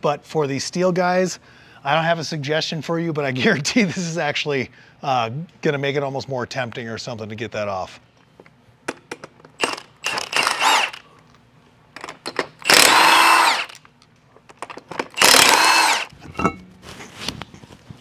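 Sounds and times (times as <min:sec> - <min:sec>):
impact wrench spinning lug nuts: 0:09.6 - 0:11.0, 0:12.0 - 0:13.8, 0:14.5 - 0:16.6.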